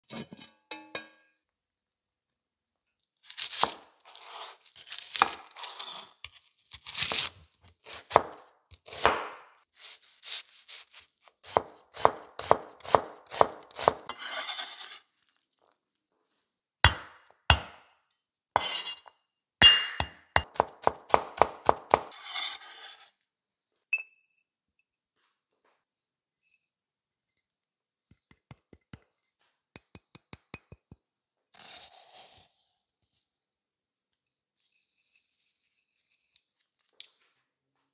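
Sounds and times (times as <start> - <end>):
knife chopping onion on board: 6.8 - 14.6, 16.9 - 17.9, 18.6 - 19.0, 19.6 - 22.4
faint clink: 23.9 - 25.0.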